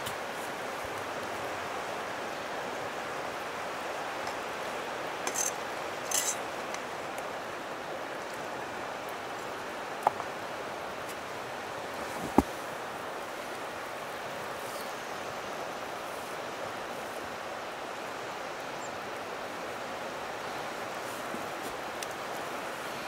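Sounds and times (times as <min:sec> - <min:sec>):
rustling scrapes: 0:05.3 - 0:06.4.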